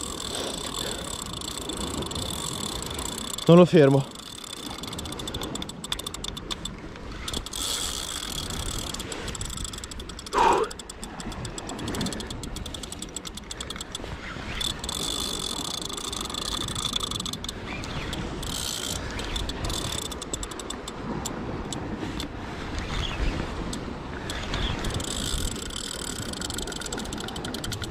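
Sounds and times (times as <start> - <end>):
fishing reel clicking and whirring: 0.0 - 27.9.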